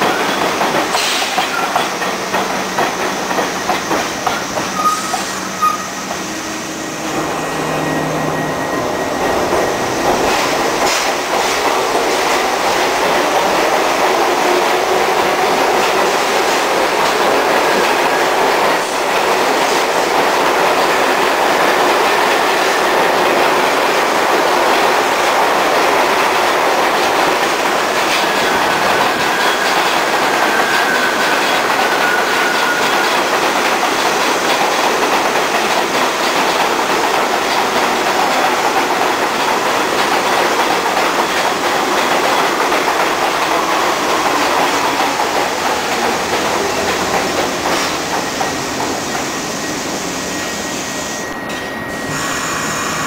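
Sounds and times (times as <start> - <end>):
clickety-clack over rail joints: 0.0 - 6.2, 9.5 - 49.4
train wheels on steel track: 0.0 - 53.0
thin wheel squeal: 4.8 - 6.0.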